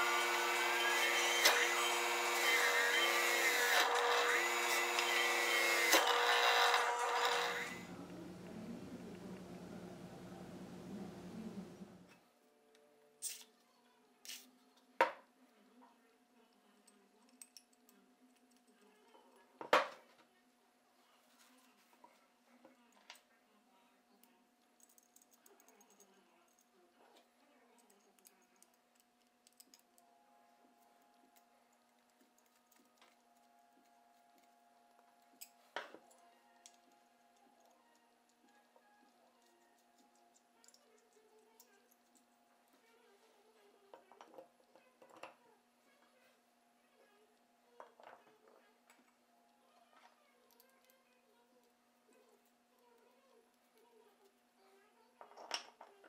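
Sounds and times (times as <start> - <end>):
faint room hum: 0.0 - 56.0
faint steady hum: 7.5 - 13.2.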